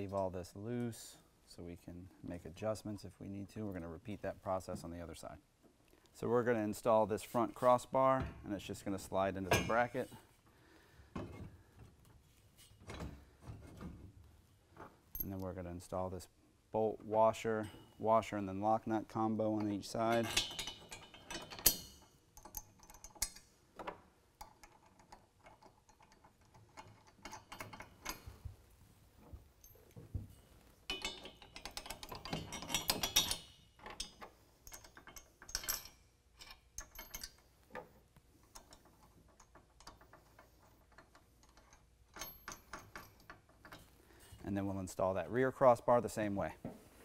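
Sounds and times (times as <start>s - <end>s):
metal hardware clicking and clinking: 14.8s - 15.6s, 19.0s - 28.5s, 29.3s - 44.4s.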